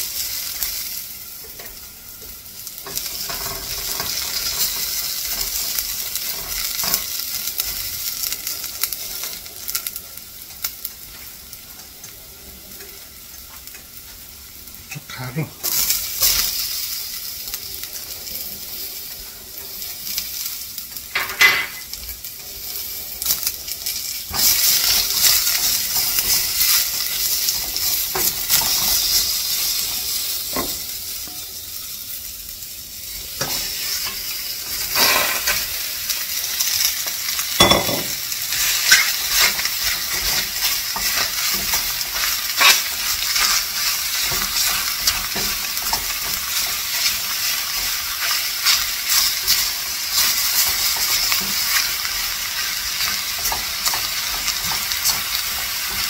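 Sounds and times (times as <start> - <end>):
food sizzling in hot oil: 0.0 - 56.0
spatula scraping in pan: 2.8 - 7.8, 33.3 - 56.0.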